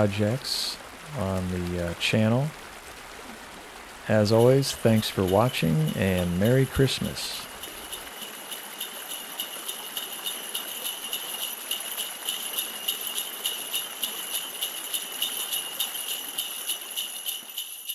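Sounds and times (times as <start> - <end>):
sleigh bells jingling: 4.1 - 17.9.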